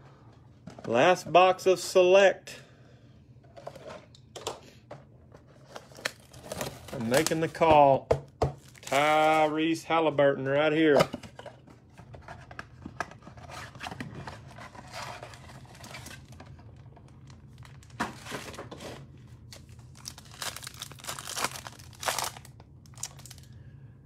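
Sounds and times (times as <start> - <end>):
foil wrappers crinkling and tearing: 5.7 - 7.6, 8.6 - 9.8, 19.5 - 23.6.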